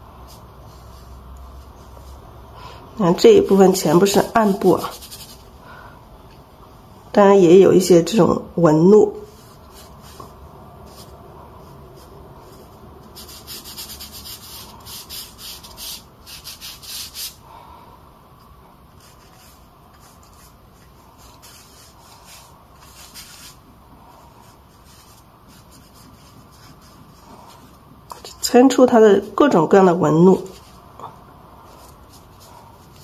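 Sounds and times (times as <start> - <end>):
brush scrubbing on paper: 0.2 - 2.3, 3.4 - 5.5, 9.2 - 17.4, 19.0 - 27.8, 30.2 - 30.9, 31.6 - 33.0.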